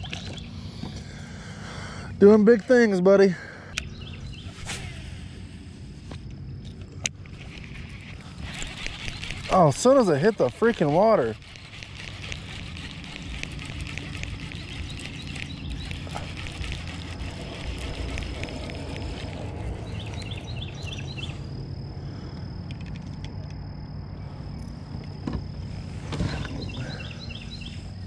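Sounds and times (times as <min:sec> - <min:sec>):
bird chirping: 0:03.7 - 0:04.6, 0:07.4 - 0:21.4, 0:26.3 - 0:27.9.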